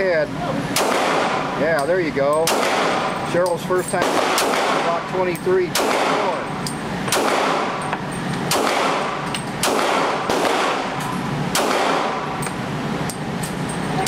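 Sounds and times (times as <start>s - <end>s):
pistol shots echoing: 0.8s - 1.5s, 2.4s - 3.2s, 4.0s - 5.0s, 5.6s - 6.5s, 7.1s - 7.8s, 8.5s - 12.4s
faint distant gunshots: 7.1s - 7.8s, 11.6s - 12.2s.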